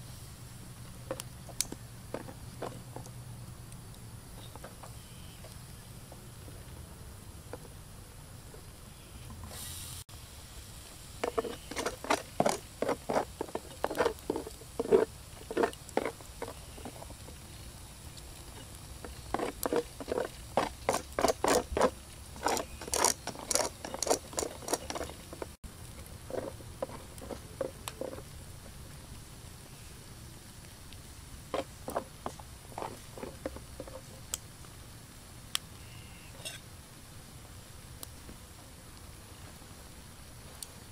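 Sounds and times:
meat crackling on charcoal grill: 0:09.6 - 0:35.8.

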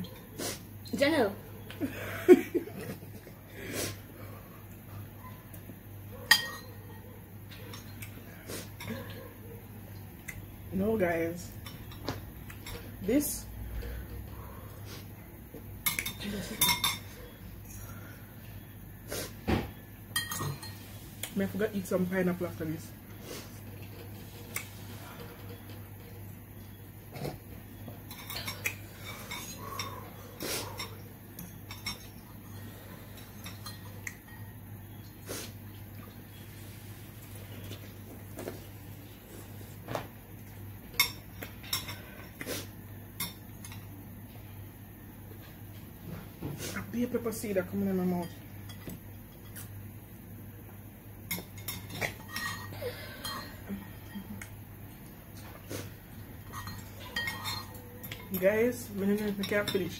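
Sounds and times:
cutlery clinking against ceramic bowls: 0:06.2 - 0:06.9, 0:15.8 - 0:17.3, 0:20.1 - 0:20.8, 0:28.0 - 0:30.0, 0:30.6 - 0:32.4, 0:33.1 - 0:34.5, 0:43.2 - 0:44.0, 0:51.3 - 0:54.5, 0:56.4 - 0:59.9.

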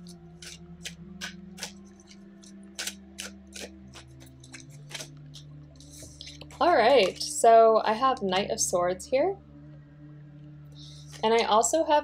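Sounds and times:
cards being shuffled: 0:00.4 - 0:07.2.

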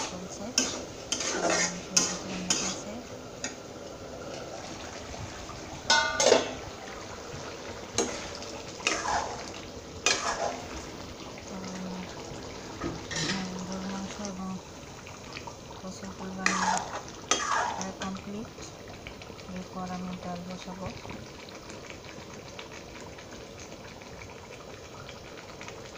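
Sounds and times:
metal spatula scraping a wok: 0:00.6 - 0:02.9, 0:08.8 - 0:09.4, 0:10.1 - 0:10.6, 0:13.1 - 0:13.4, 0:16.4 - 0:17.8
metal lid clanking onto pan: 0:05.9 - 0:06.6.

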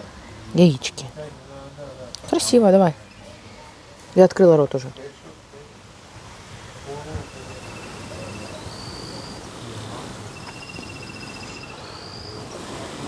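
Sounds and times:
crickets trilling: 0:07.0 - 0:12.7.

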